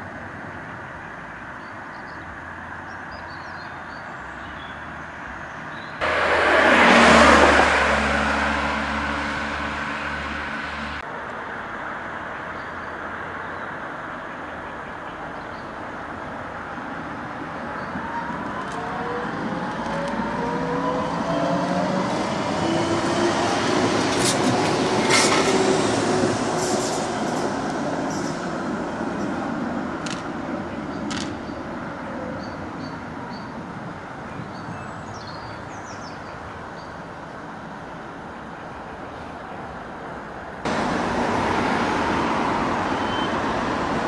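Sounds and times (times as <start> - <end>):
electric tram passing: 5.6 - 11.0, 14.1 - 34.8, 37.1 - 44.0.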